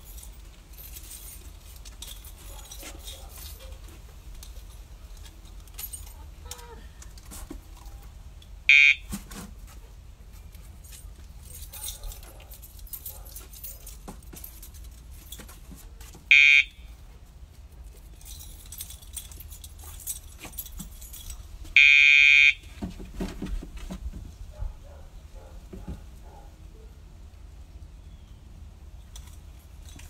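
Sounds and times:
collar pager buzzing: 21.8 - 22.6.

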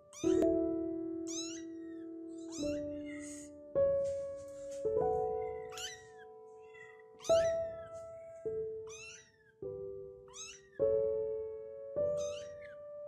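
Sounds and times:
slow background music: 0.0 - 13.0
kitten mewing: 0.1 - 0.5, 1.3 - 3.6, 5.2 - 9.5, 10.3 - 10.8, 12.1 - 12.8.

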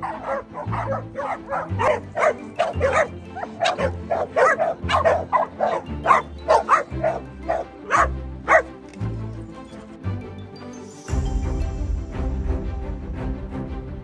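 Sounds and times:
dogs barking and yipping: 0.0 - 9.9
background music with bass: 0.0 - 14.0.

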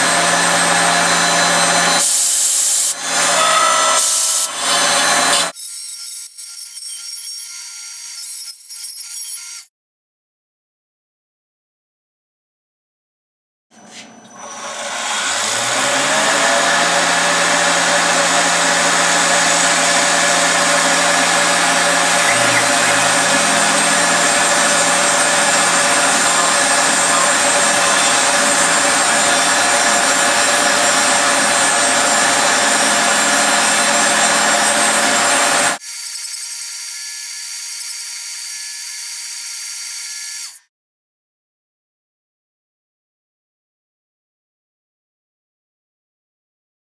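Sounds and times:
mill spindle cutting: 0.0 - 9.7, 14.3 - 40.6.

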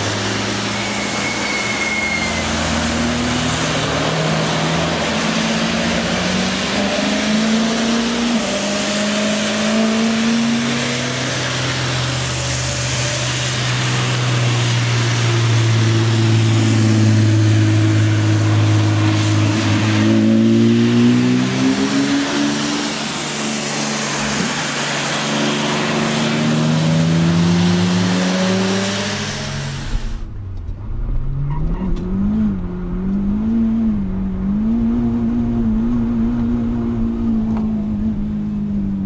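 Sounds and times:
tyre spray hiss on wet tarmac: 0.0 - 30.2
cars accelerating past: 0.0 - 39.0.

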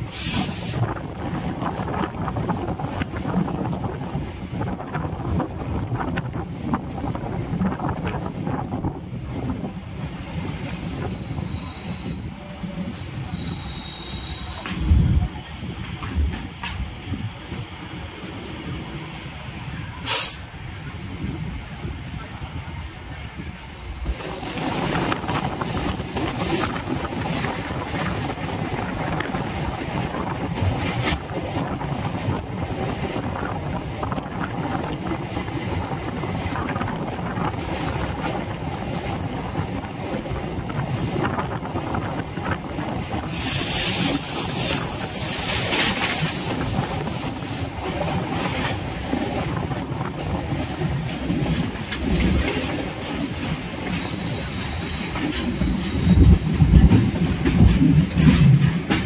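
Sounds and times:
sharp high hiss: 20.0 - 20.5
train wheels clacking on rails: 34.4 - 59.0.

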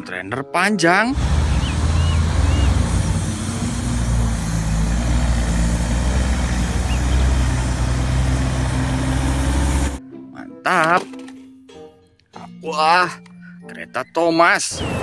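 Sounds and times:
truck diesel engine rumble: 1.1 - 10.0.

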